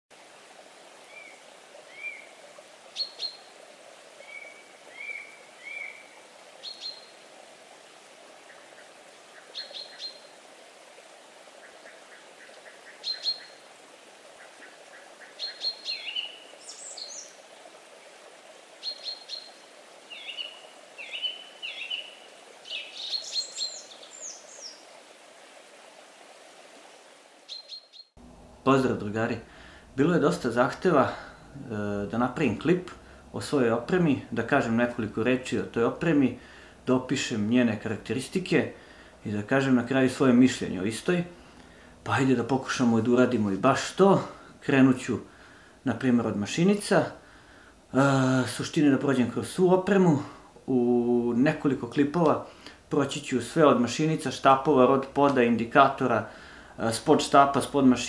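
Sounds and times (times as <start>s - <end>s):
faint steady background noise: 0.1s - 58.0s
small birds chirping: 1.0s - 3.5s, 4.2s - 7.2s, 8.5s - 10.4s, 11.6s - 13.7s, 14.4s - 17.4s, 18.8s - 24.9s, 27.5s - 28.2s.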